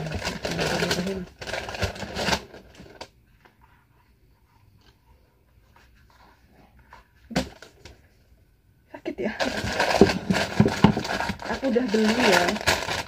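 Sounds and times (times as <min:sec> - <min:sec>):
shoebox rustling and tapping: 0:09.4 - 0:12.6.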